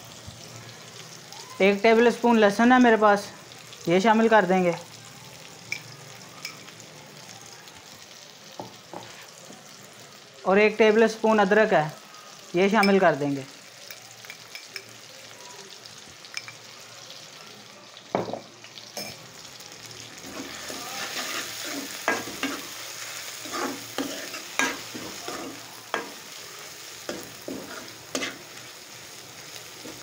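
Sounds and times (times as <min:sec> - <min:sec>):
food sizzling in a pan: 0:00.0 - 0:30.0
metal spoon scraping a pan: 0:20.2 - 0:26.2, 0:27.0 - 0:28.6, 0:29.8 - 0:30.0.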